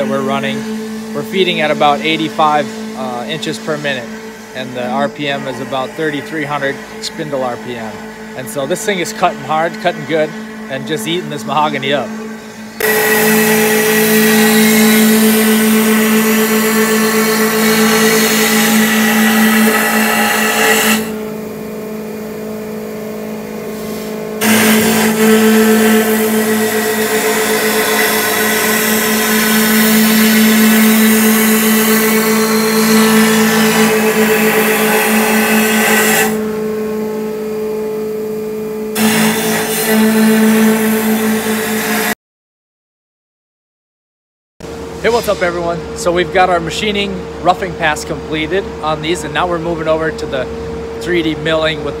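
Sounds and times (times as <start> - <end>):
hiss of wood being cut: 0.0 - 21.4, 23.6 - 36.5, 38.9 - 42.2
milling machine spindle hum: 0.0 - 42.2, 44.7 - 52.0.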